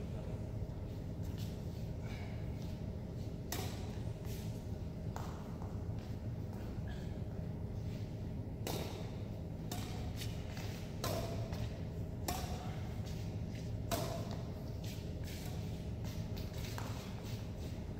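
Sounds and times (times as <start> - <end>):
steady low hum: 0.0 - 17.9
racket hitting shuttlecock: 3.5 - 4.4, 8.6 - 17.4.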